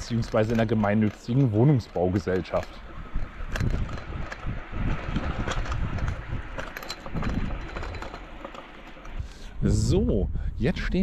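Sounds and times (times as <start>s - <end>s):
small knocks and rattles: 0.0s - 9.3s
vehicle rolling on rough street: 0.0s - 11.0s
wind on microphone: 2.8s - 8.4s, 9.0s - 11.0s.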